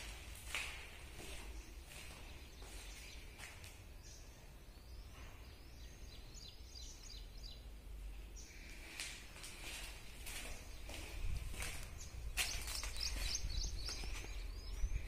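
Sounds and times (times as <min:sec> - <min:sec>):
footsteps on gritty concrete: 0:00.0 - 0:03.7, 0:08.9 - 0:14.9
low rumble of room and wind: 0:00.0 - 0:15.0
bird chirping: 0:01.3 - 0:08.7, 0:11.8 - 0:15.0.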